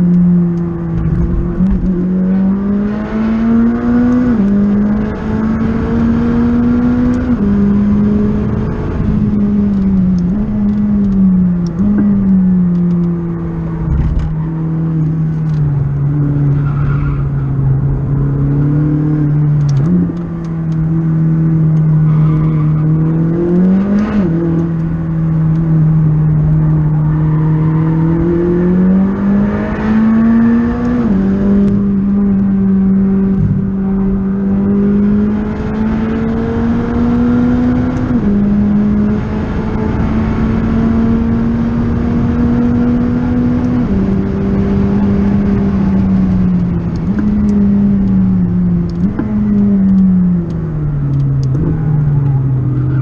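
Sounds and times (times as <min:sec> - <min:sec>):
car engine accelerating and upshifting: 0:00.0 - 0:53.0.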